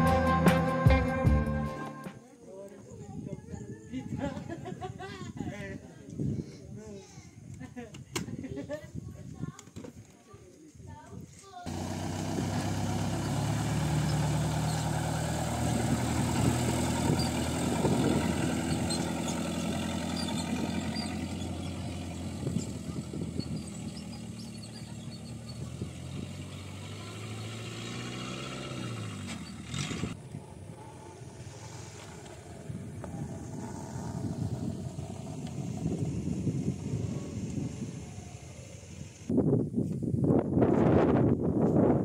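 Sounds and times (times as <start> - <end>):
motorcycle engine running: 11.7 - 39.3.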